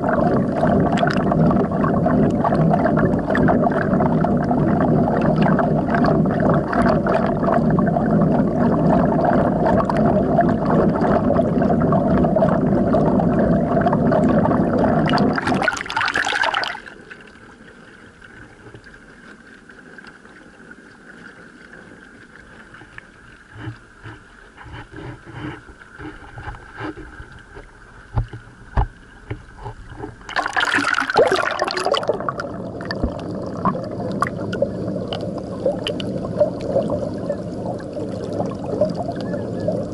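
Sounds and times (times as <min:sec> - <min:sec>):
muffled underwater water rush: 0:00.0 - 0:39.9
water splash: 0:08.6 - 0:17.1, 0:28.1 - 0:39.9
water lapping: 0:13.6 - 0:39.9
small knocks: 0:23.6 - 0:30.3.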